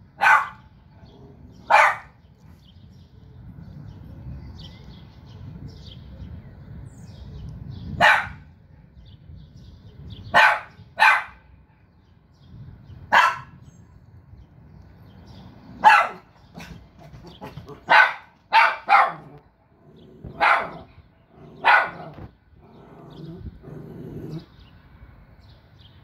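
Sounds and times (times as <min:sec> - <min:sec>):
dog barking: 0:00.2 - 0:00.7, 0:01.6 - 0:02.2, 0:08.0 - 0:08.5, 0:10.3 - 0:11.4, 0:13.1 - 0:13.6, 0:15.8 - 0:16.8, 0:17.4 - 0:19.4, 0:20.2 - 0:22.3.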